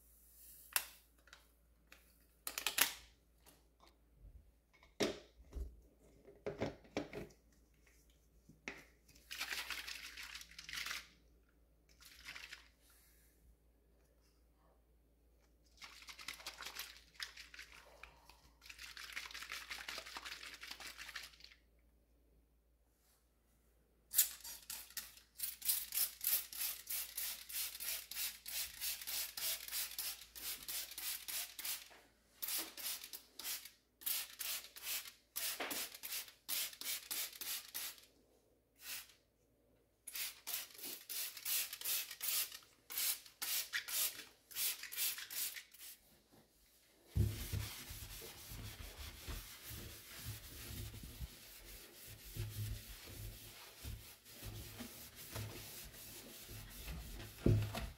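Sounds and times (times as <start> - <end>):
spray bottle squirting: 40.1 - 46.0
sponge scrubbing stainless steel: 47.2 - 57.5.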